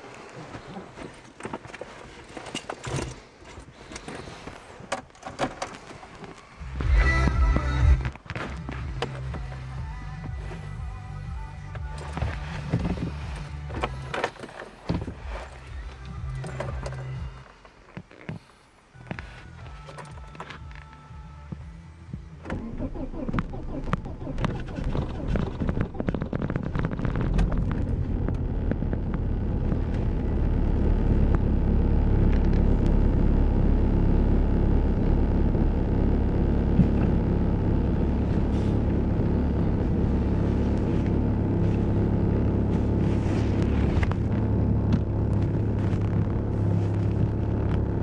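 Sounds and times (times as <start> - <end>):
diesel engine idling: 21.8 - 48.0.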